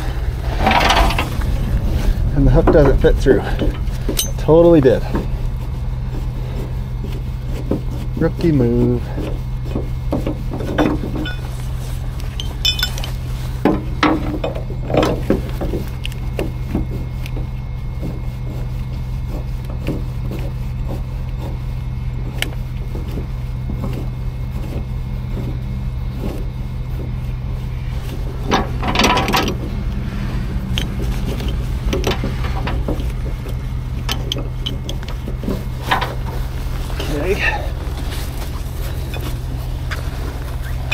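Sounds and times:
truck engine idling: 0.0 - 40.9
metal hooks and chain clinking: 3.5 - 5.1, 10.6 - 13.3.

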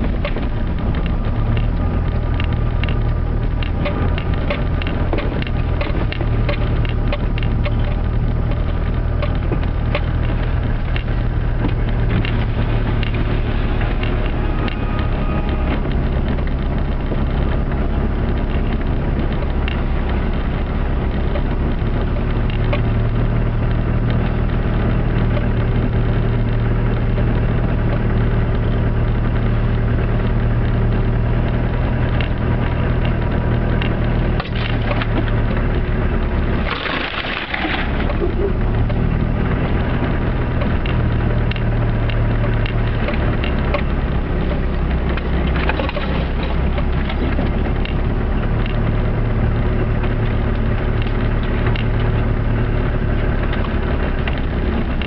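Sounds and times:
crackling and crunching over snow: 0.0 - 55.0
diesel engine pulling uphill: 0.0 - 55.0.

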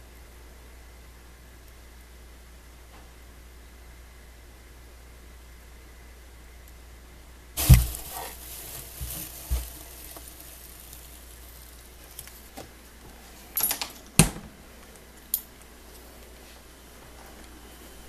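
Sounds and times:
soft thumps: 7.6 - 9.7
rustling of wood-shaving bedding: 7.6 - 13.4.

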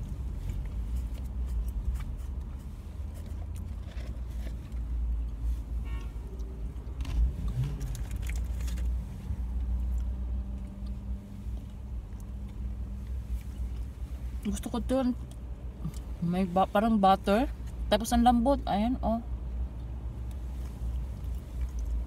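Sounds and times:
low rumble in car cabin: 0.0 - 22.0
food wrapping clicks and rustles: 3.1 - 4.9, 7.0 - 9.0.

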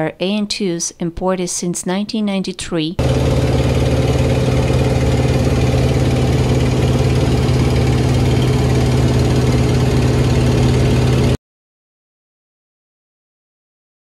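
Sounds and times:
radial aircraft engine drone: 3.0 - 11.4.

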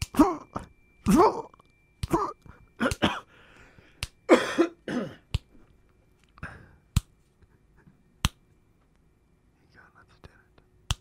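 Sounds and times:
sharp snapping clicks: 0.0 - 0.2, 4.0 - 4.2, 5.3 - 5.5, 6.2 - 7.2, 8.2 - 8.4
man coughing: 0.1 - 1.5, 2.1 - 3.4, 4.3 - 5.3.

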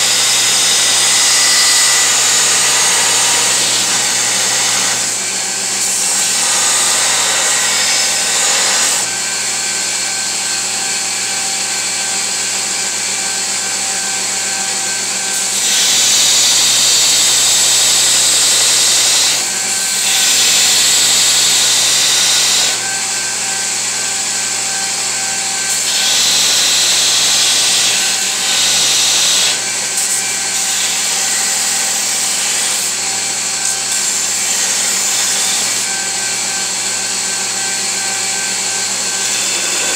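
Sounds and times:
belt grinder running: 0.0 - 39.9
steel grinding on belt: 37.4 - 39.9.

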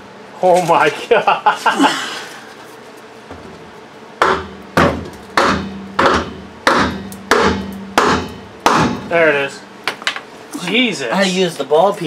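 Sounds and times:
hammer striking metal drum: 4.2 - 10.0.

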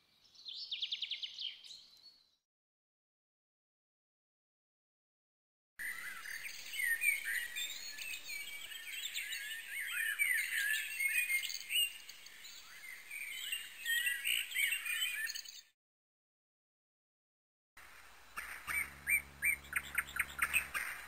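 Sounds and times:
small birds chirping: 0.0 - 2.4, 5.8 - 15.8, 17.9 - 21.0.

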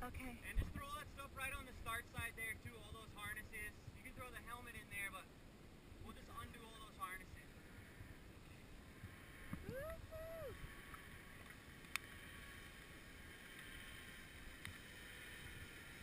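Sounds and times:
faint wind noise: 0.0 - 16.0
distant voice whooping: 9.6 - 10.6.

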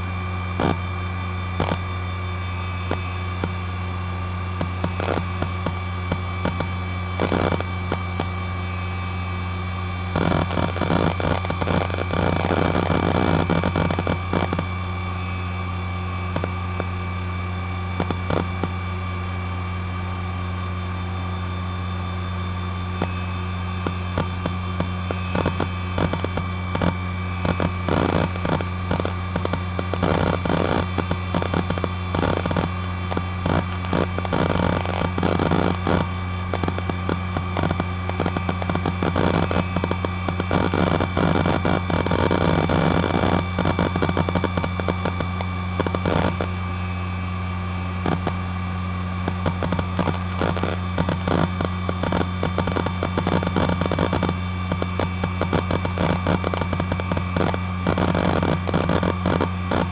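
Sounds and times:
hard drive spinning hum: 0.0 - 59.9
hard drive heads clicking: 4.6 - 8.3, 23.8 - 46.5, 49.2 - 59.9.

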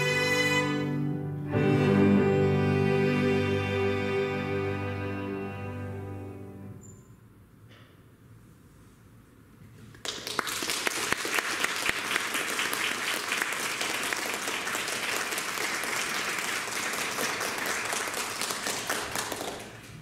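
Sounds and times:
audience applauding: 10.0 - 20.0.

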